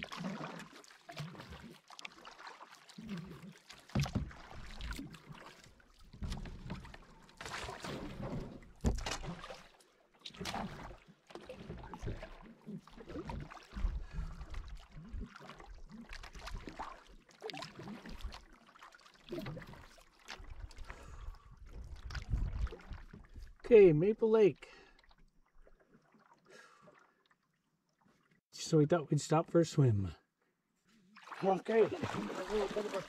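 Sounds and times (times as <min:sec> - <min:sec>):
paddle strokes splashing water: 0:00.0 - 0:23.6, 0:31.0 - 0:33.0.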